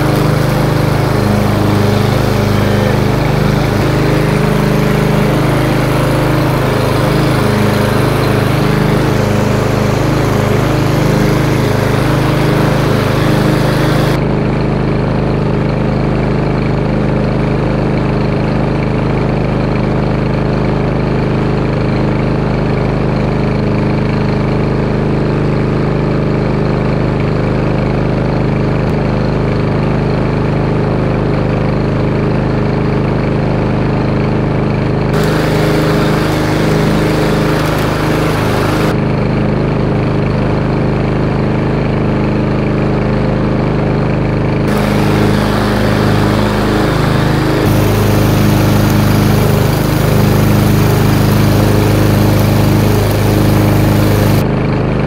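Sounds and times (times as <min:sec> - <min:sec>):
harsh hiss: 0:00.0 - 0:14.2, 0:35.2 - 0:39.0, 0:44.7 - 0:54.4
lawn mower engine running: 0:00.0 - 0:14.2, 0:35.1 - 0:39.0, 0:44.7 - 0:54.4.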